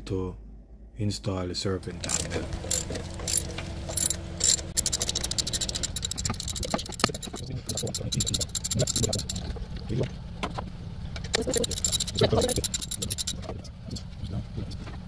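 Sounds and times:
ratchet wrench clicking: 0:02.0 - 0:09.4, 0:11.4 - 0:13.4.

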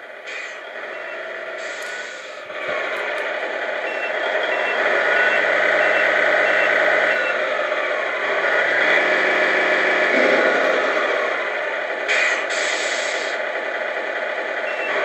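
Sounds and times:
simulated truck engine from speaker: 0:00.0 - 0:15.0
reversing beeper: 0:00.5 - 0:02.6, 0:03.8 - 0:07.8, 0:08.9 - 0:11.5.

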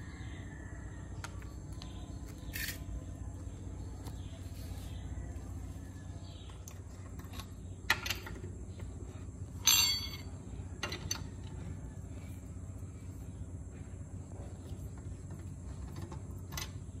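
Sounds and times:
steady low hum: 0:00.0 - 0:17.0
socket and wrench clinking: 0:09.6 - 0:11.3.

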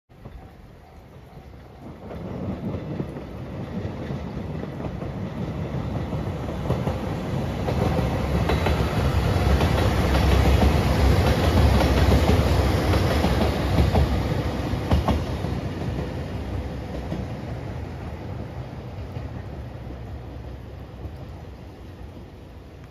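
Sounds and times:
wheels clicking over rail joints: 0:00.1 - 0:17.5
diesel train passing: 0:00.1 - 0:22.9.

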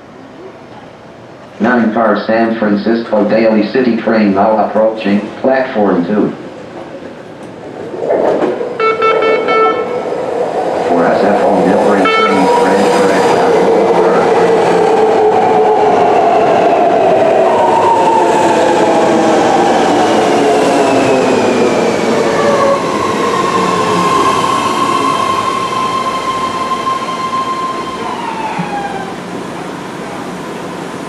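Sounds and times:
train braking whine: 0:08.5 - 0:31.0
steady high tone: 0:08.8 - 0:14.6.

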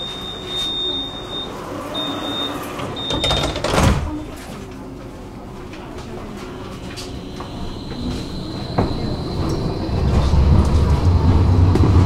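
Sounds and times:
high steady warning beep: 0:00.0 - 0:03.4.

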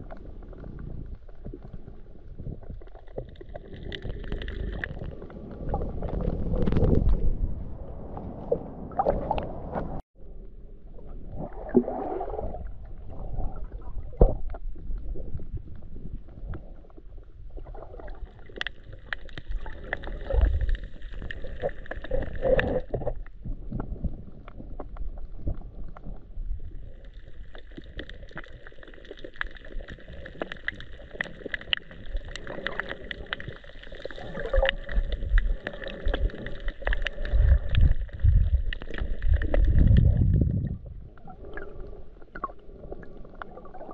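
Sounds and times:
clicks and crackles: 0:00.0 - 0:07.4, 0:17.6 - 0:43.9
underwater rumble of moving water: 0:00.0 - 0:43.9.

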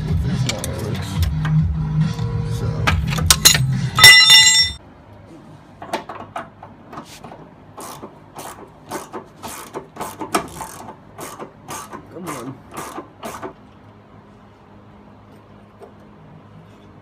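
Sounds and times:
metal tool clanging: 0:03.2 - 0:04.8.

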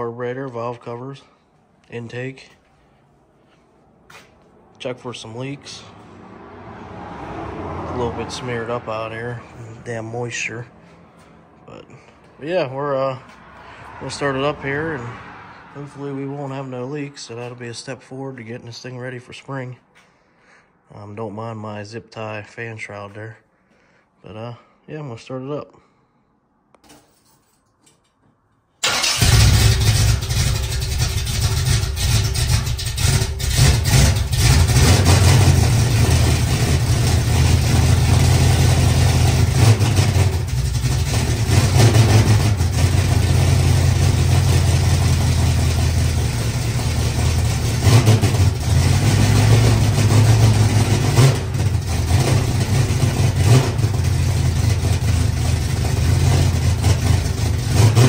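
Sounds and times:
car engine starting and revving: 0:05.6 - 0:09.9, 0:28.8 - 0:58.0.

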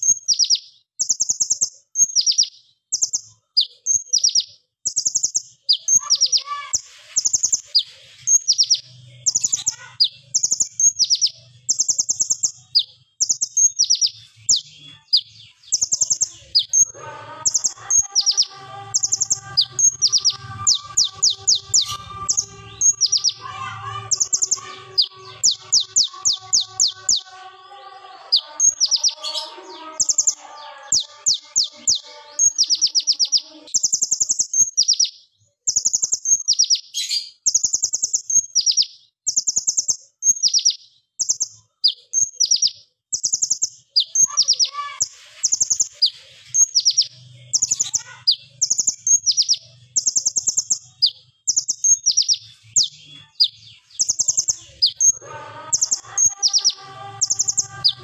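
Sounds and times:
bird chattering song: 0:00.0 - 0:58.0
low bird warbling: 0:16.5 - 0:33.4, 0:54.7 - 0:58.0.

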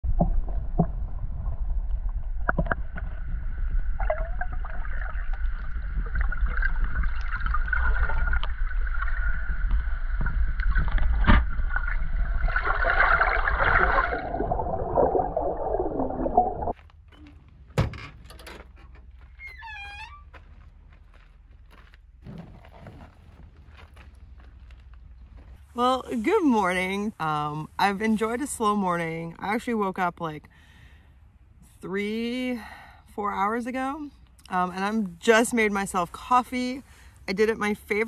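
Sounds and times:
water splashing and gurgling: 0:00.0 - 0:16.8.

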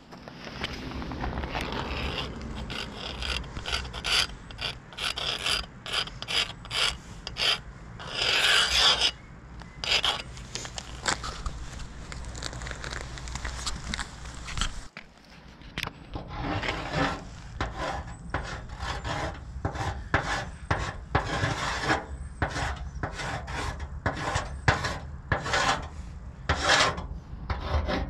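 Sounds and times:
marker scraping on metal: 0:00.6 - 0:11.9, 0:16.1 - 0:28.0.

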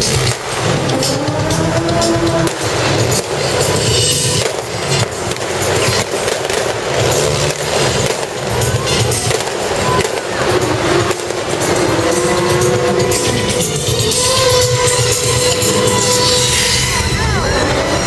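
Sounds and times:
clatter: 0:00.0 - 0:14.0
loud continuous noise: 0:00.0 - 0:18.0
show music with low beat: 0:00.0 - 0:18.0.

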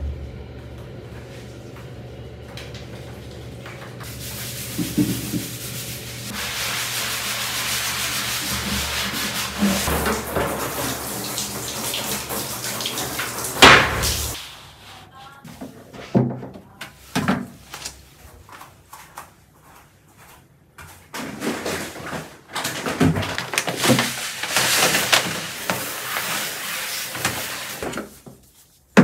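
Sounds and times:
shower hose spraying water: 0:02.7 - 0:14.9, 0:23.5 - 0:28.2
sponge scrubbing plastic box: 0:04.0 - 0:15.0, 0:23.4 - 0:28.9.

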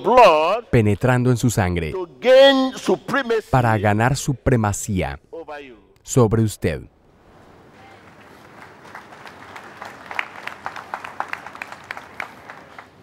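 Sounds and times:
crowd noise: 0:07.3 - 0:13.0
hand claps: 0:08.0 - 0:13.0.

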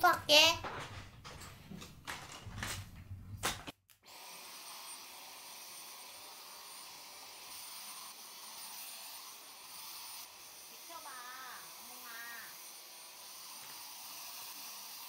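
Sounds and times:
stick vacuum cleaner running: 0:04.1 - 0:15.0.

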